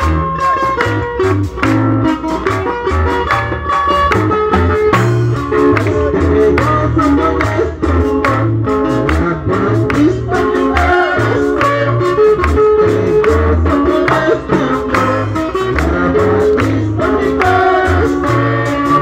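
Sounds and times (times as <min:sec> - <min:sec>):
live band music: 0:00.0 - 0:19.0
person singing into a microphone: 0:05.8 - 0:19.0.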